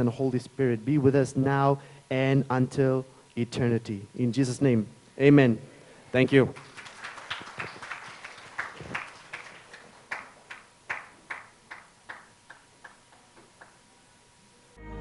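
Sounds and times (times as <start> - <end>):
hand claps: 6.5 - 13.8.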